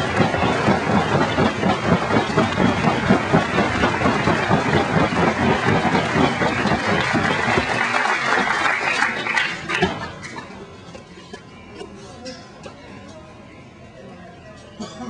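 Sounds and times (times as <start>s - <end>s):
crowd applauding and cheering: 0.0s - 10.1s.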